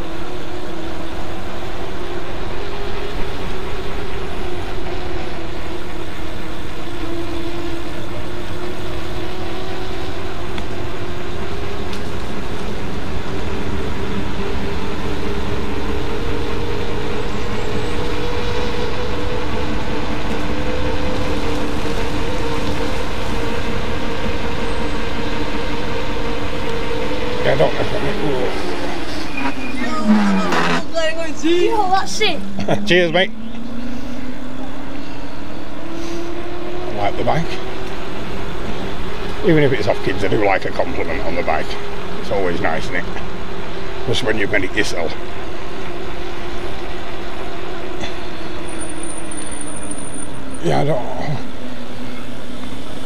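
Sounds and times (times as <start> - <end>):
tyre noise on tarmac: 9.6 - 32.7.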